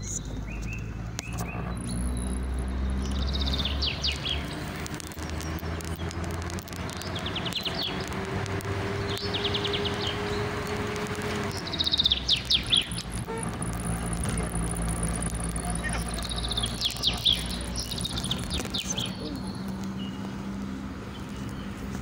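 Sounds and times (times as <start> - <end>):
low outdoor rumble: 0.0 - 22.0
small bird trilling: 15.6 - 19.4.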